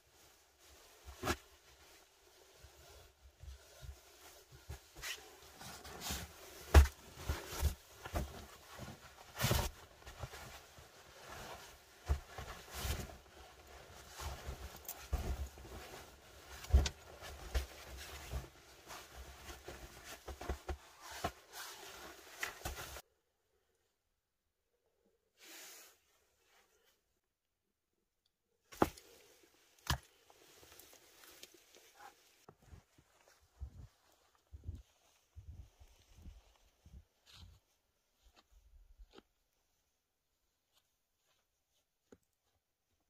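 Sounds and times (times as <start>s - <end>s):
sleeping bag rustling and crinkling: 0.0s - 23.0s.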